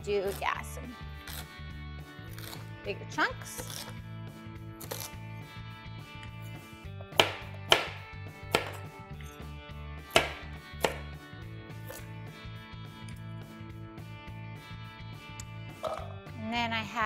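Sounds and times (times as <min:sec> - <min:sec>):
soft background music: 0:00.0 - 0:17.0
knife chopping on plastic board: 0:07.0 - 0:08.8, 0:10.1 - 0:11.1.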